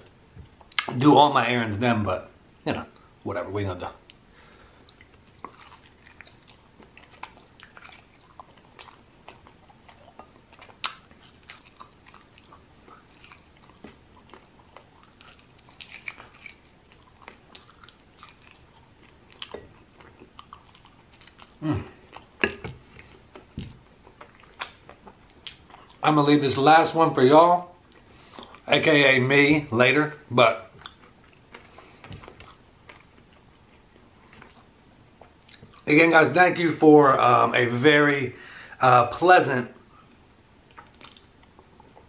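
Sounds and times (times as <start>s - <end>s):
man chewing and lip-smacking: 0.4s - 0.9s, 4.8s - 26.0s, 27.8s - 28.7s, 30.7s - 35.9s, 39.8s - 42.0s.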